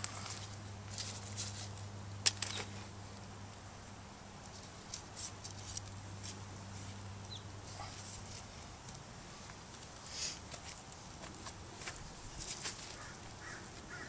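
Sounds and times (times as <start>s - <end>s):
soil and plastic pot rustling: 0.0s - 3.0s, 7.7s - 14.0s
steady low hum: 0.0s - 14.0s.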